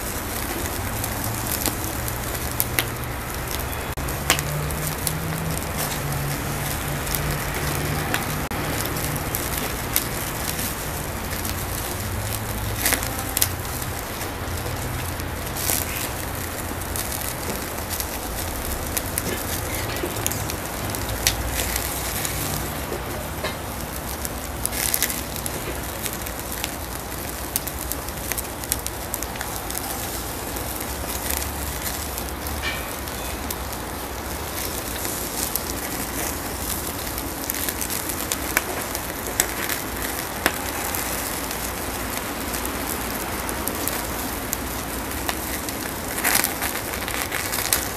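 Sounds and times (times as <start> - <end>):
charcoal fire crackling: 0.0 - 47.9
steady hiss: 0.0 - 47.9
sharp pops: 3.6 - 14.4.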